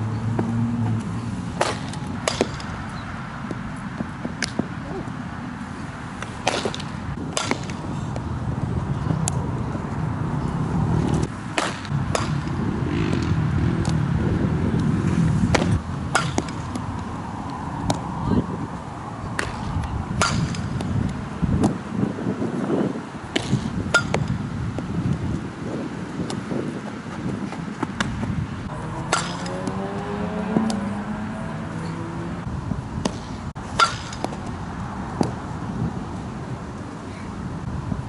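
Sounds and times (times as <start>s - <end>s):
wind rumble on microphone: 0.0s - 38.0s
bat striking ball: 1.6s - 2.8s, 6.2s - 7.9s, 11.5s - 13.4s, 15.5s - 16.8s, 19.4s - 20.9s, 23.3s - 24.4s, 28.8s - 31.0s, 33.0s - 34.5s.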